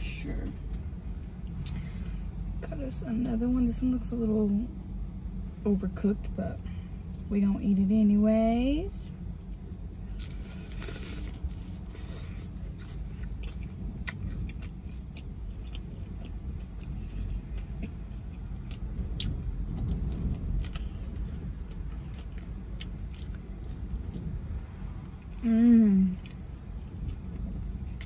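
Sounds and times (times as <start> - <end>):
low rumble inside a car: 0.0 - 28.0
biting and chewing fried chicken: 9.4 - 25.4
crackles of fried skin: 10.0 - 24.3.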